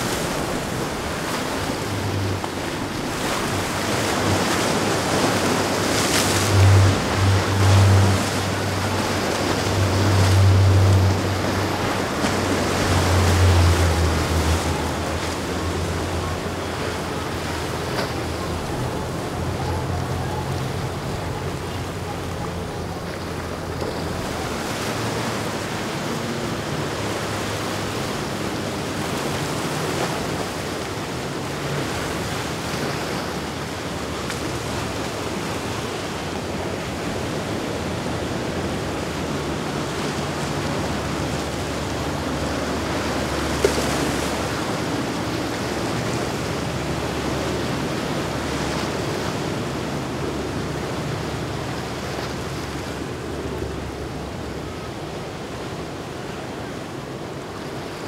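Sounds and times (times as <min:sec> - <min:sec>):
waves and surf rushing: 0:00.0 - 0:58.0.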